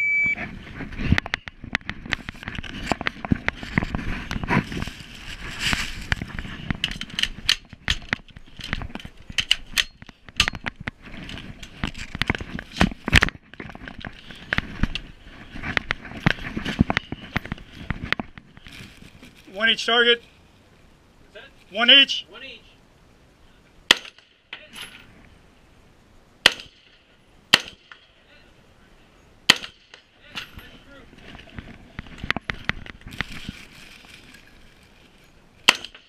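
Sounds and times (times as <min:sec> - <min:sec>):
rifle gunshots: 0:26.4 - 0:26.9, 0:27.5 - 0:27.9.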